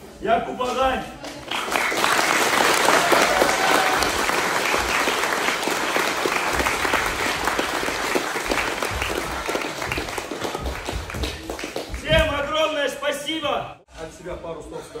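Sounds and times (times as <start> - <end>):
crowd applauding: 1.2 - 12.1.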